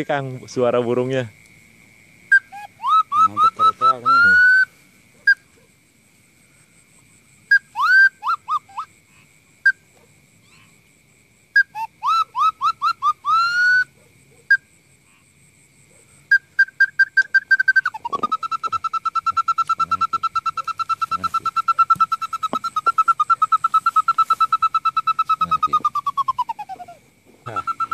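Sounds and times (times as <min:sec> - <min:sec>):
bird-call whistle: 0:02.3 - 0:05.5, 0:07.5 - 0:08.9, 0:11.6 - 0:14.7, 0:16.3 - 0:27.9.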